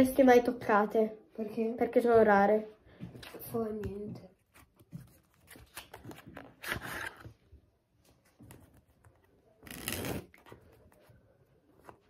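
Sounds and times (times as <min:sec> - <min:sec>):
playing cards riffled: 0:09.6 - 0:10.5.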